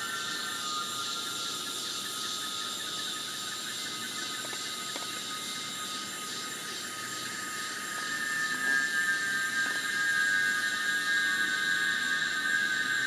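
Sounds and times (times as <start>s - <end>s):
cicadas droning: 0.0s - 13.0s.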